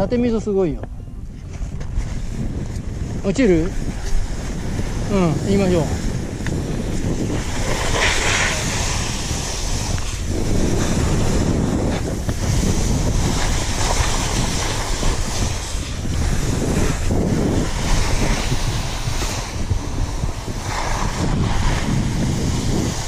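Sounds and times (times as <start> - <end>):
wind on microphone: 0.0 - 23.0
skis scraping on snow: 1.4 - 23.0.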